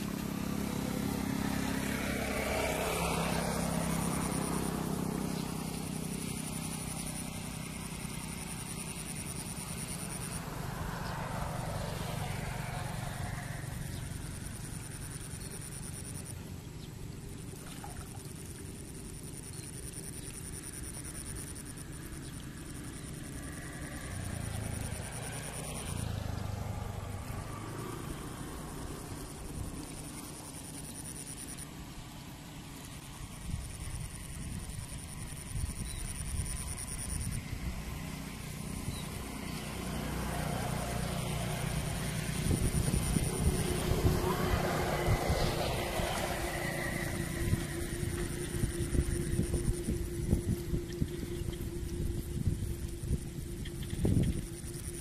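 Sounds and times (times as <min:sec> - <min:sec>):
faint high-pitched whine: 0:00.0 - 0:55.0
faint steady hum: 0:00.0 - 0:55.0
wind buffeting microphone: 0:42.0 - 0:54.8
low rumble: 0:42.4 - 0:55.0.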